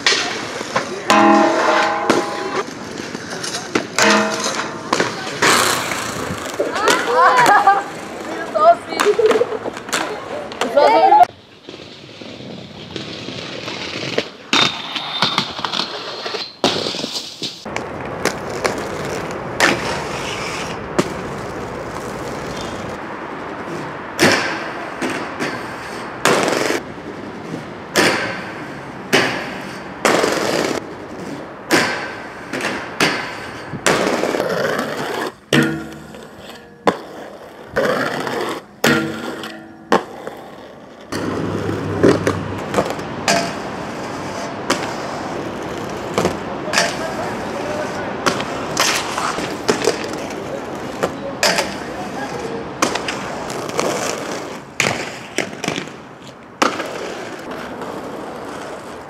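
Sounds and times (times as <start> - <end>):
sharp clacks and impacts: 0.0 - 7.0
inline skates rolling on pavement: 0.0 - 59.0
skates grinding on metal rails: 0.0 - 59.0.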